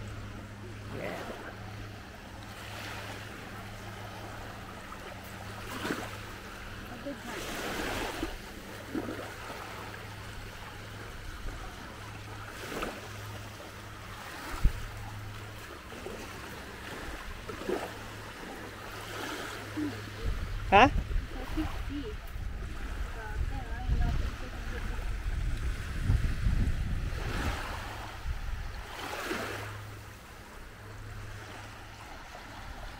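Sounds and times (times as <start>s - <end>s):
small waves lapping on shore: 0.0s - 32.9s
steady low hum: 0.0s - 32.9s
wind rumble on microphone: 14.1s - 15.6s, 20.1s - 30.0s.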